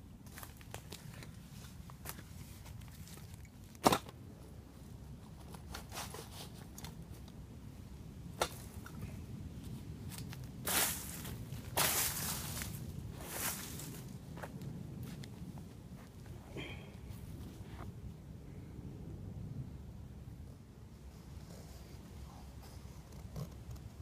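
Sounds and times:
rustle of cloth: 9.6s - 16.5s
footsteps on dry leaves: 10.1s - 16.3s.

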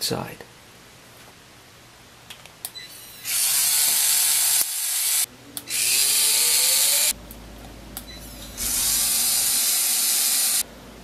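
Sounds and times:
pen motor whirring: 3.2s - 7.1s, 8.6s - 10.6s.

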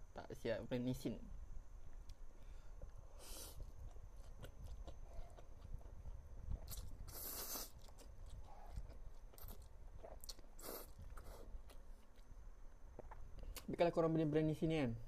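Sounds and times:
person chewing noodles: 2.8s - 12.3s, 12.9s - 13.7s.

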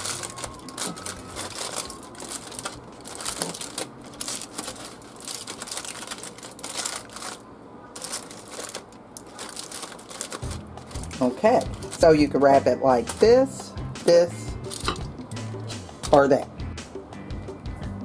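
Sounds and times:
aluminium foil crinkling: 0.0s - 13.6s, 14.7s - 15.0s.

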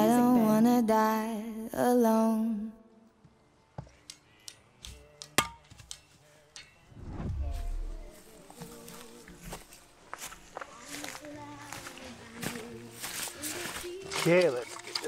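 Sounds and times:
song with singing: 7.3s - 15.0s.

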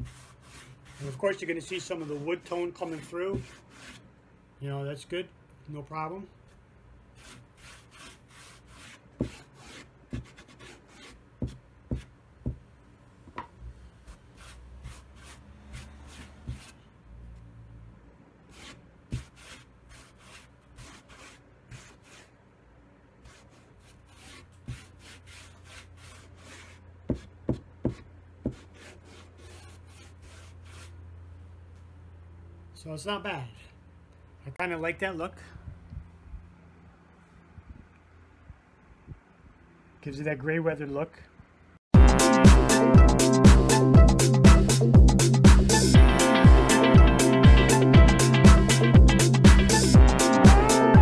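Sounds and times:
rag rubbing on rough boards: 23.2s - 30.9s.

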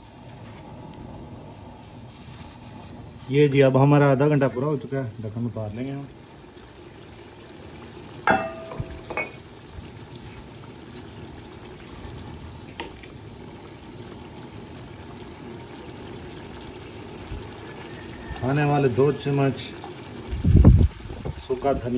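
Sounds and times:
curry bubbling with a hiss: 0.0s - 21.9s
metal pot lid clanking: 8.2s - 9.4s
small metal clink: 8.3s - 9.4s.

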